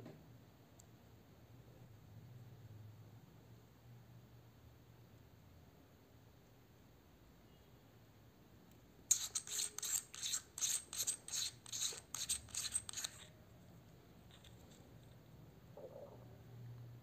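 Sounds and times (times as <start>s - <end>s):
threaded cap twisting rasps: 9.1s - 13.3s.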